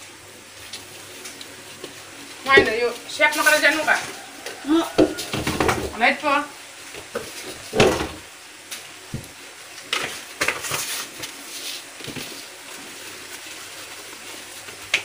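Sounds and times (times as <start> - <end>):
plastic bowls knocking: 5.0 - 6.0.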